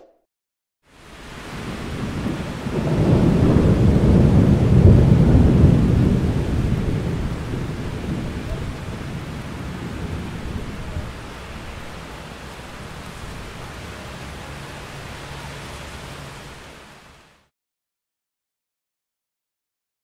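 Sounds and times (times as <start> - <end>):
steady rain hiss: 0.9 - 17.5
thunder rumbling: 1.1 - 15.4.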